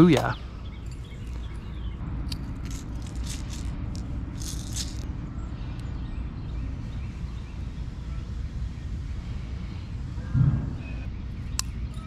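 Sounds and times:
steady low rumble: 0.0 - 12.0
rattle of small hard objects: 2.5 - 5.0.

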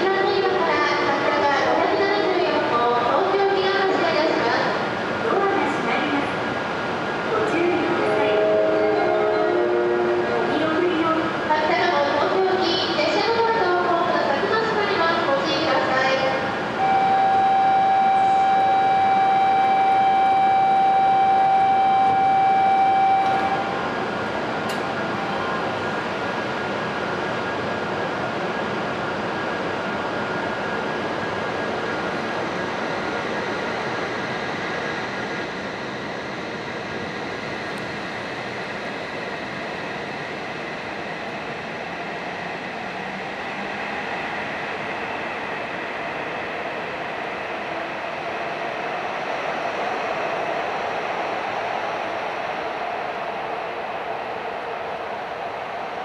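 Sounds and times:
steady electronic warning tone: 16.8 - 24.0
high whine: 16.8 - 26.2.

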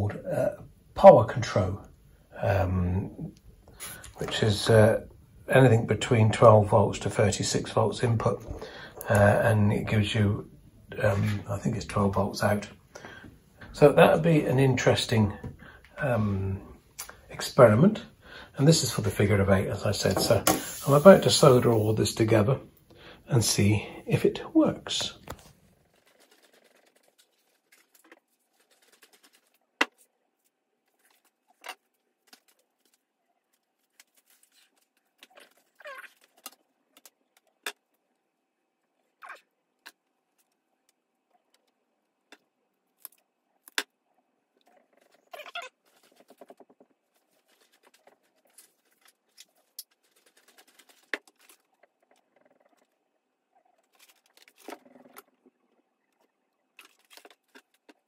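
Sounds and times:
hands handling wire and tools: 25.3 - 37.9, 44.6 - 51.9, 56.8 - 58.0.

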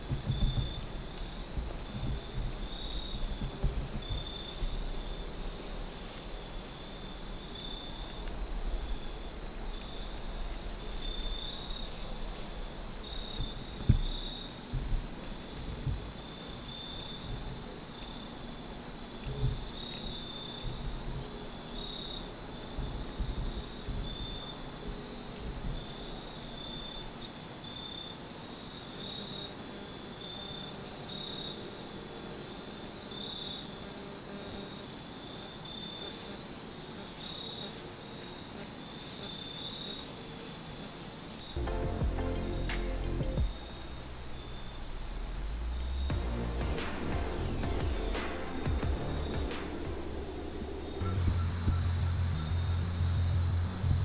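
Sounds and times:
low bumps: 0.0 - 26.7, 41.6 - 54.0
crickets trilling: 0.0 - 54.0.

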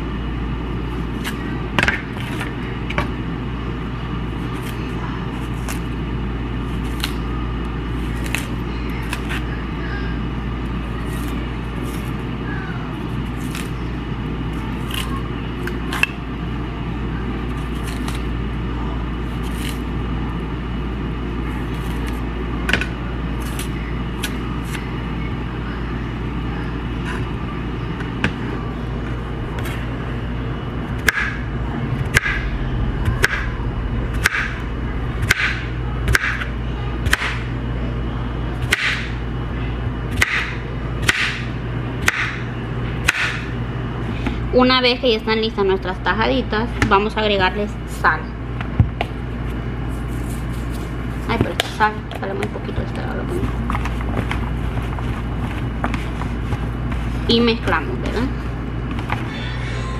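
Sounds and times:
steady low hum: 0.0 - 59.9
knife peeling bananas: 6.6 - 7.3, 13.0 - 13.8, 14.5 - 16.2, 17.5 - 18.3, 19.3 - 20.0
knife chopping on plastic board: 35.2 - 37.4, 38.6 - 39.1, 40.1 - 42.4, 43.0 - 43.5.

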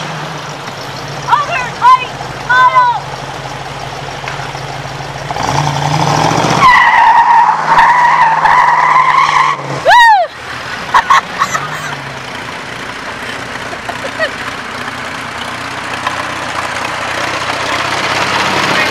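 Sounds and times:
vehicle engine revving: 0.0 - 18.9
tyres squealing: 5.4 - 18.9
rising and falling whoop: 6.6 - 10.4.

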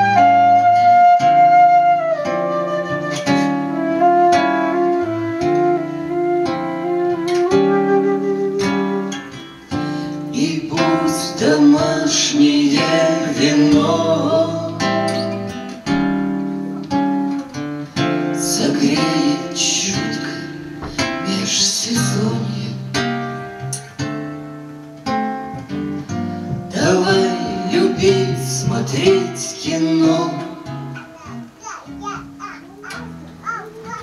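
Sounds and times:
flute melody: 0.0 - 10.0
fingerpicked acoustic guitar: 0.0 - 34.0.

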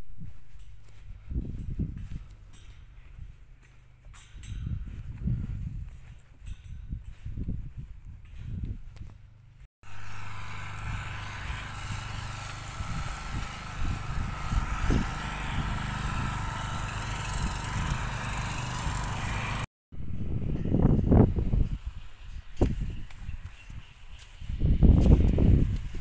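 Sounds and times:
footsteps: 0.0 - 10.5
small engine running: 9.8 - 22.9.

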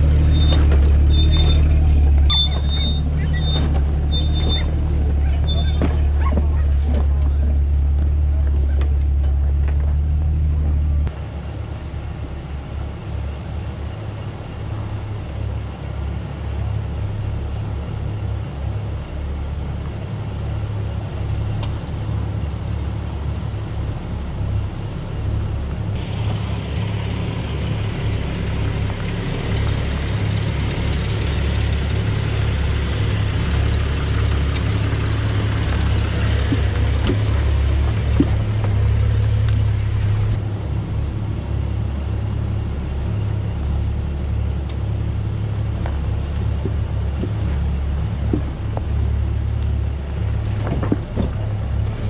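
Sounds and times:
engine rumbling at low revs: 0.0 - 52.0.

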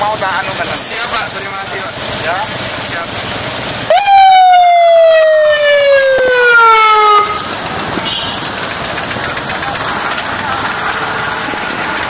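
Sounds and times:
motorcycle engine running: 0.0 - 12.0
electronic siren wail: 3.9 - 7.5.

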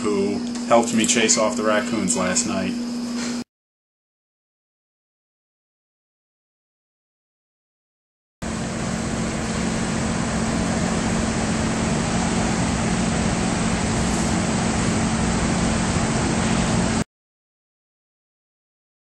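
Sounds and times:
low even hum: 8.4 - 17.0.

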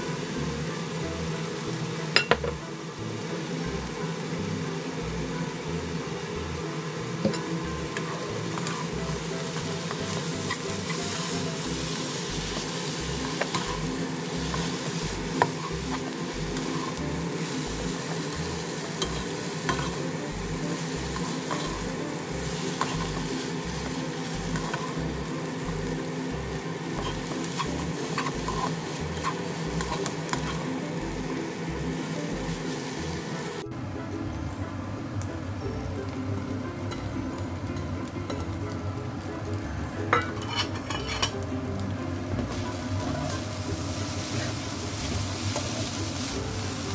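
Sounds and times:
food sizzling in a wok: 0.0 - 34.2, 35.6 - 46.9
soft background music with beat: 0.0 - 46.9
spatula stirring food: 7.2 - 33.6, 40.1 - 41.4, 42.3 - 46.9.

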